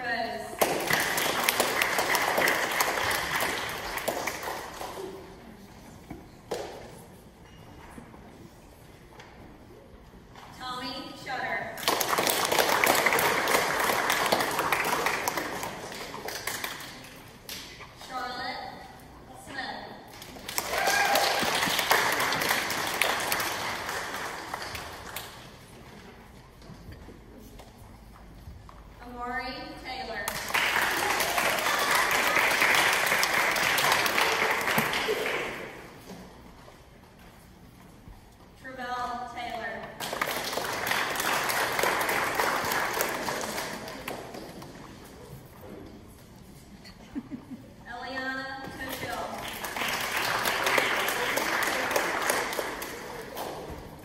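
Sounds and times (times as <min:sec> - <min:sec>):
audience applause: 0:00.7 - 0:05.1, 0:11.8 - 0:16.8, 0:20.4 - 0:25.2, 0:30.4 - 0:35.7, 0:40.0 - 0:44.3, 0:49.4 - 0:54.0.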